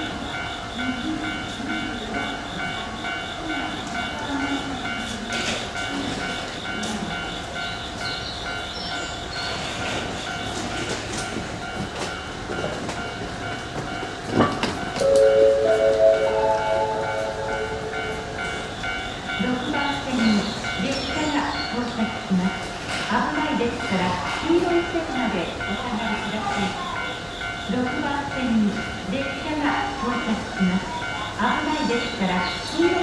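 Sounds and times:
locomotive horn chord: 15.0 - 18.7.

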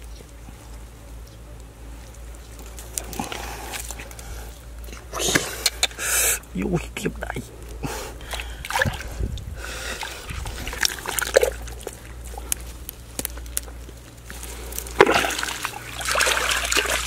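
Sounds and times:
hands sloshing in muddy water: 7.9 - 12.8, 14.3 - 17.0.

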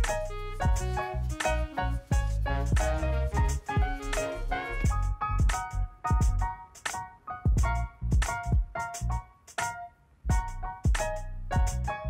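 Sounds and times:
melodic music over steady beat: 0.0 - 12.0.

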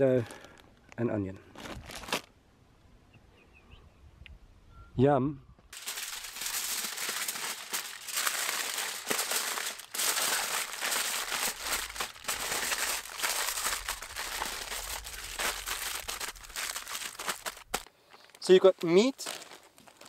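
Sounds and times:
aluminium foil crinkling: 1.5 - 2.3, 5.7 - 20.0.

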